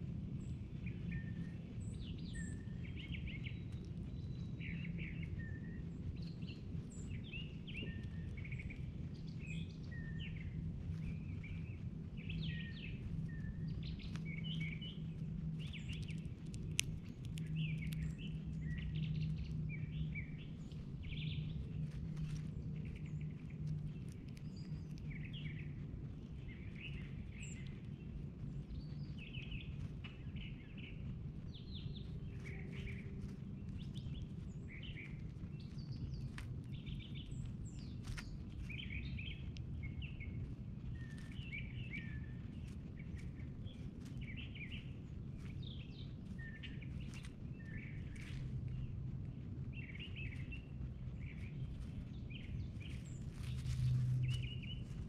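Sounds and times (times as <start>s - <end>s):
low background rumble: 0.0s - 55.0s
songbirds chirping: 0.0s - 55.0s
faint clicks: 6.1s - 42.1s.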